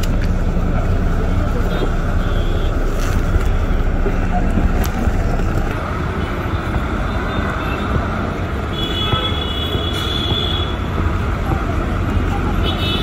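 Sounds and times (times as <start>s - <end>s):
bus engine rumbling: 0.0s - 13.0s.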